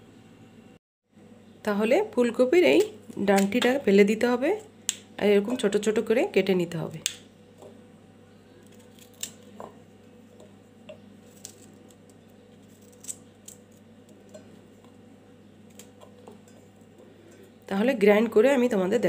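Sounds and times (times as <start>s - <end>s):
knife cutting cauliflower stems: 11.0s - 14.4s.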